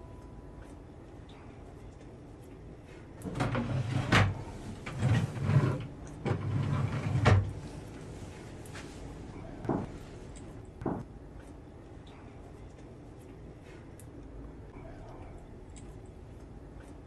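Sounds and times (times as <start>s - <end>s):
drawer sliding and scraping: 3.2s - 8.3s.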